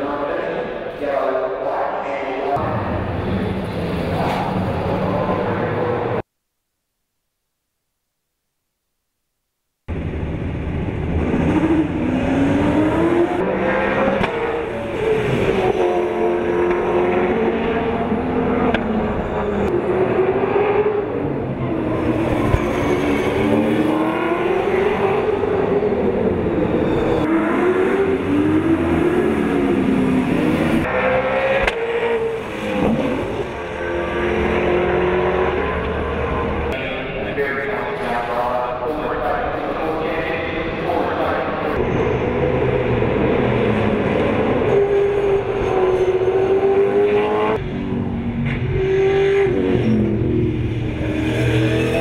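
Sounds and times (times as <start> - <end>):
race car engines passing: 10.8 - 52.0.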